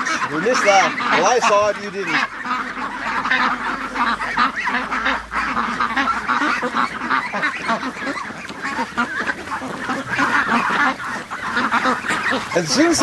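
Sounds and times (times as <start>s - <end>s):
ducks quacking: 0.0s - 13.0s
geese honking: 0.0s - 13.0s.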